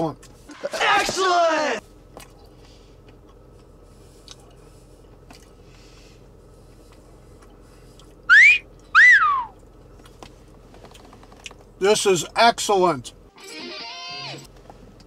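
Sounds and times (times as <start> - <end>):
wolf whistle: 8.3 - 9.6.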